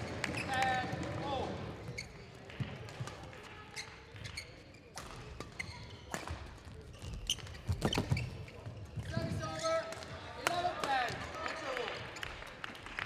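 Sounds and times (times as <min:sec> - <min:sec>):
shoes squeaking on court floor: 0:00.0 - 0:09.9
rackets hitting shuttlecock: 0:04.9 - 0:06.6.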